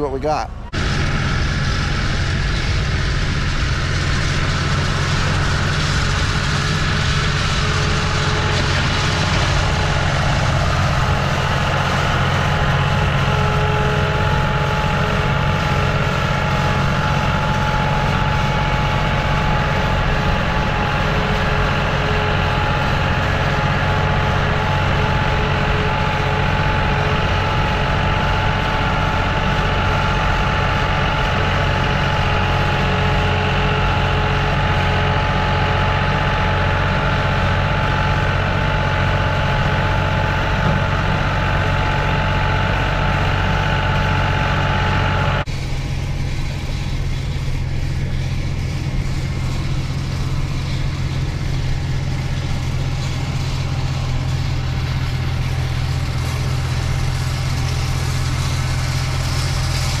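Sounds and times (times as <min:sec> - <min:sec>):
tractor engine running: 0:00.0 - 1:00.0.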